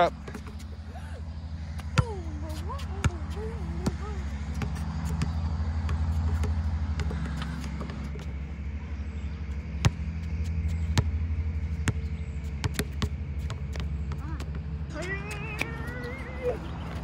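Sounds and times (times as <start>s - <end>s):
low engine drone: 0.0s - 17.0s
basketball bouncing on hard court: 12.6s - 14.6s.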